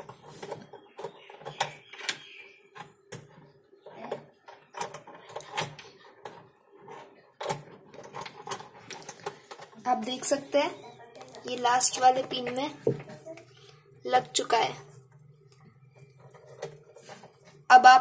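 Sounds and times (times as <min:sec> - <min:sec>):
hard plastic parts clicking: 0:00.0 - 0:09.8.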